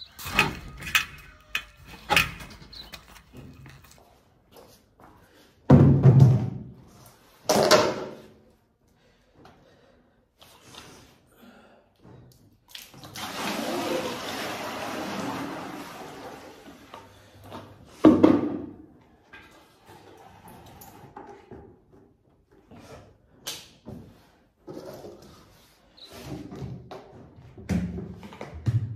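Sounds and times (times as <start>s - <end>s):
buckets knocking and clicking: 0.0s - 4.0s.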